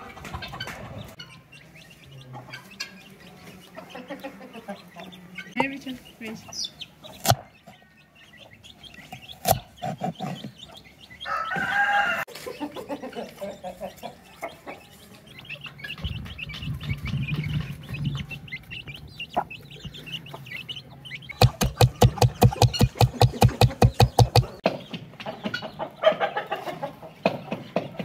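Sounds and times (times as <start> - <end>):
chickens clucking: 0.0 - 28.0
rapid sharp knocks: 21.4 - 24.6.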